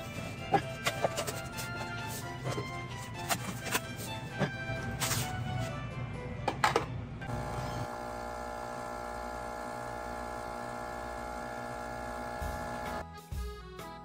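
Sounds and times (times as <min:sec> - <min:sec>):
coffee machine humming: 0:07.2 - 0:13.0.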